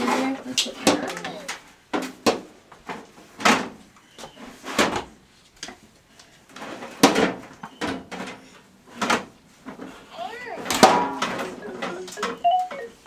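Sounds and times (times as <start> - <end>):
pans knocking and clattering: 10.7 - 12.4.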